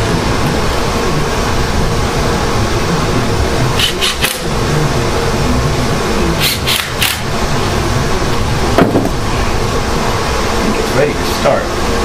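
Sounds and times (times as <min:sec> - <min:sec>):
steady low rumble: 0:00.0 - 0:12.0
cordless drill running bolt: 0:06.4 - 0:07.2.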